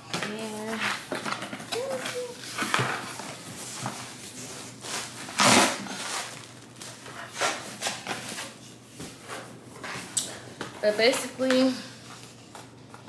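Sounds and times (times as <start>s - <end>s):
cardboard scraping and rustling: 0.4s - 10.1s
scissors cutting cardboard box: 5.3s - 6.3s.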